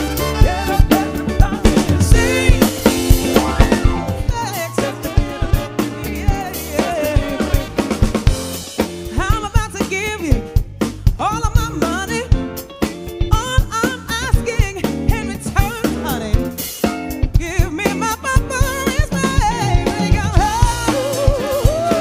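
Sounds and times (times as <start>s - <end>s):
lead vocal singing: 0.0s - 8.2s, 17.4s - 22.0s
drum kit beat: 0.0s - 22.0s
live rock band playing: 0.0s - 22.0s.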